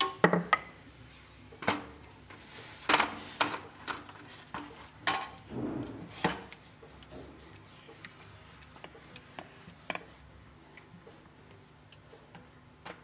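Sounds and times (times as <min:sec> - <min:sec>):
utensils clinking on iron griddle: 0:02.4 - 0:05.4.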